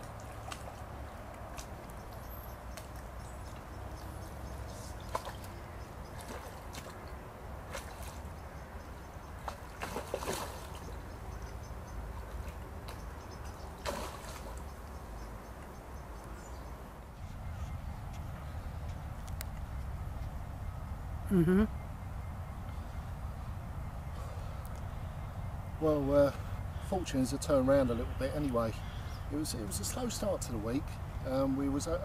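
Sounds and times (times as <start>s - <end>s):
water sloshing around boat: 0.0s - 17.8s.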